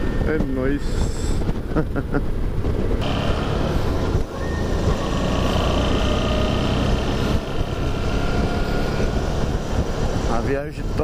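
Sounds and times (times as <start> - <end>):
wind on microphone: 0.0 - 3.0, 3.7 - 11.0
motorcycle engine running: 3.0 - 10.2.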